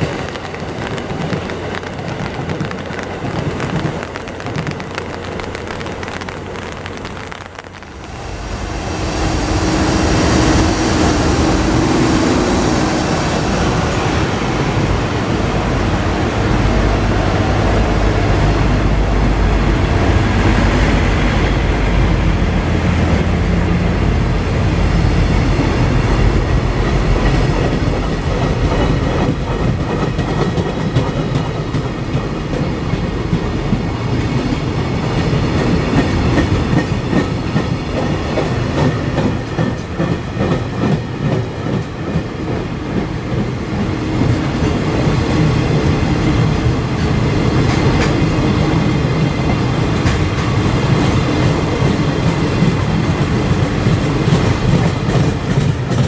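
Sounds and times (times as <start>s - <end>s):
freight train wheels clattering: 0.0s - 7.9s, 25.5s - 56.0s.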